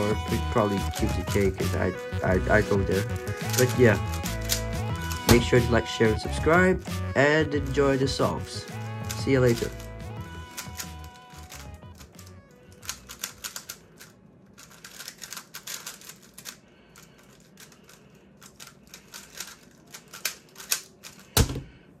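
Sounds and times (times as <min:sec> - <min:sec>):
faint music: 0:00.0 - 0:21.3
speed cube plastic clicking: 0:02.6 - 0:05.9, 0:08.8 - 0:21.6.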